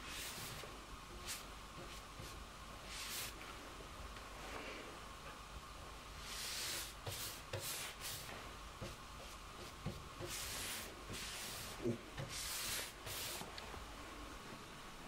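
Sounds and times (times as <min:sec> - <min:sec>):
paintbrush swishing on wood: 0:00.0 - 0:03.4, 0:06.2 - 0:13.5.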